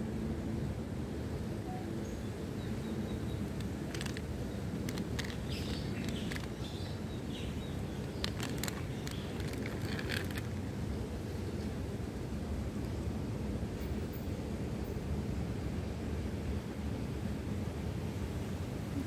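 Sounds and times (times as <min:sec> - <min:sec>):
low outdoor rumble: 0:00.0 - 0:19.0
tripod clicking and rattling: 0:03.5 - 0:06.9, 0:08.0 - 0:10.6.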